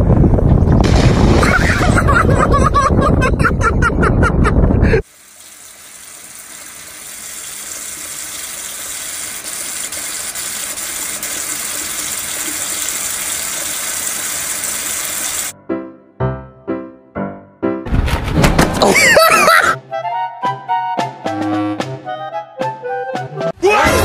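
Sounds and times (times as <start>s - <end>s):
faucet water splashing into sink: 5.0s - 15.5s.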